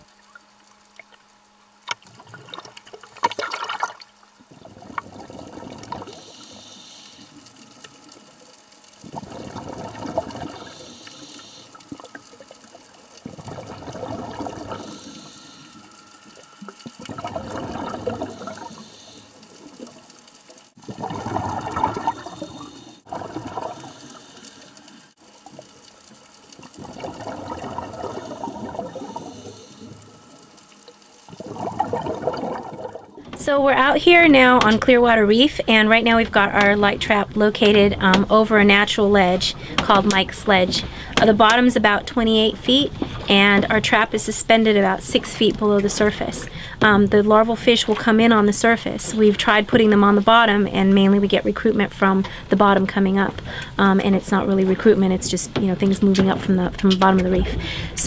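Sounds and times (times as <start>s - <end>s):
diver exhaling bubbles: 3.4s - 6.5s, 9.0s - 11.0s, 13.3s - 15.4s, 16.7s - 20.0s, 20.8s - 24.7s, 26.7s - 30.0s, 31.3s - 33.4s, 57.3s - 58.0s.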